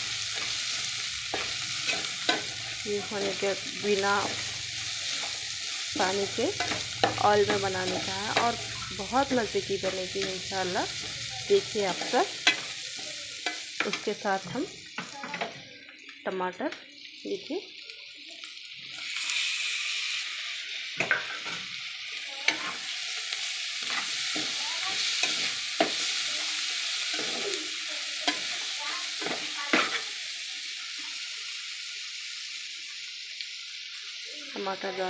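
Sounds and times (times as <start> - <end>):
tomatoes sizzling in hot oil: 0.0 - 35.0
steel spoon clinking against pan: 1.3 - 3.4, 11.9 - 12.8.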